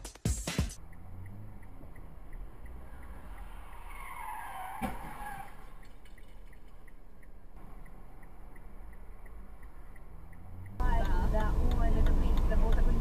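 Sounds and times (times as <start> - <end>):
car tyres squealing: 0.8 - 10.8
low road rumble: 0.8 - 13.0.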